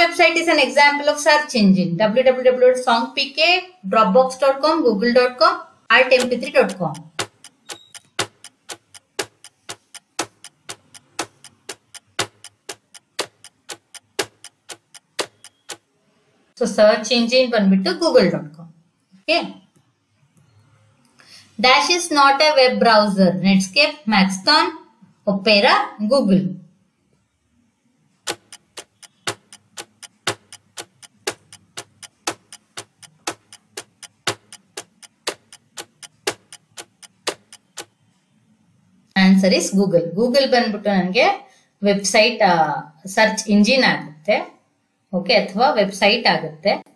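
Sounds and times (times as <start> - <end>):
clock ticking: 6.0 - 15.9, 28.2 - 38.1.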